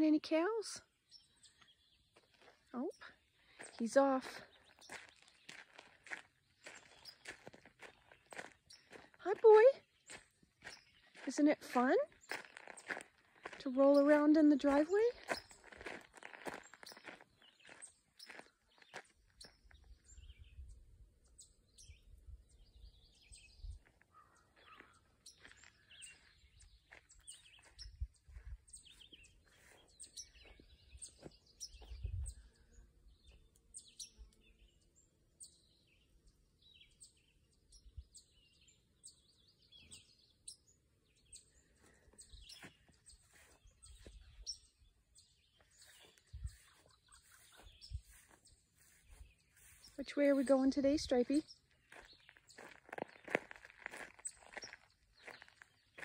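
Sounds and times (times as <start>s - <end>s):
birds chirping: 0.0s - 56.0s.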